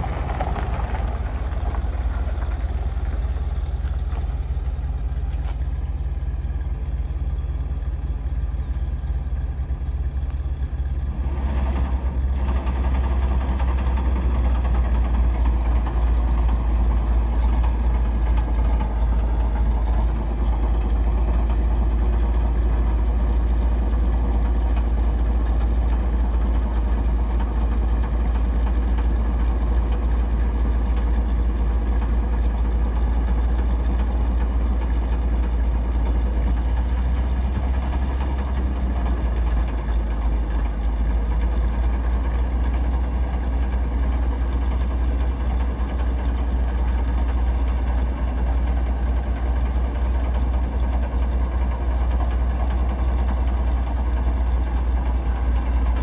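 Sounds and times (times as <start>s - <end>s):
truck engine idling: 0.0s - 56.0s.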